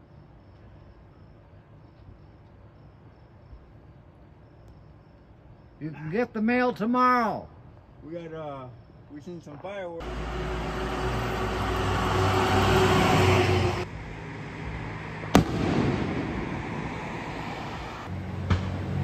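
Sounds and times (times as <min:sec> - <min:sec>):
low hum: 0:10.0 - 0:19.0
rolling rumble: 0:10.0 - 0:19.0
steady rushing noise: 0:12.8 - 0:19.0
firework shell bang: 0:15.3 - 0:16.7.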